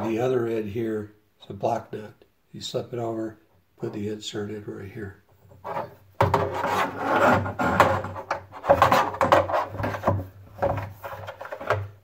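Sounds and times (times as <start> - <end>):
plastic parts rubbing and scraping: 5.4 - 12.0.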